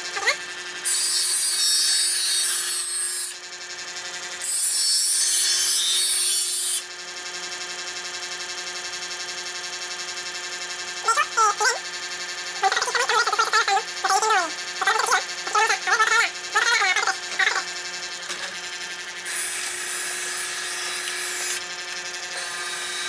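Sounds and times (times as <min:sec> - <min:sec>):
knife grinding in sharpener: 0:00.0 - 0:03.5, 0:04.2 - 0:06.9, 0:12.6 - 0:23.0
knife sharpener motor hum: 0:00.0 - 0:23.0.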